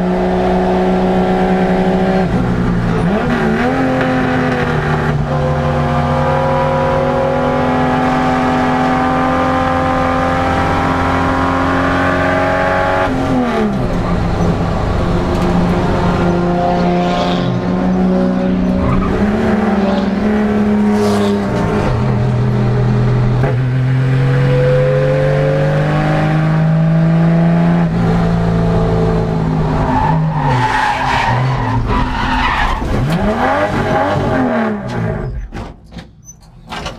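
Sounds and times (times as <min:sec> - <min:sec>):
race car engine revving: 0:00.0 - 0:35.2
tyres skidding: 0:11.6 - 0:24.4, 0:29.4 - 0:36.9.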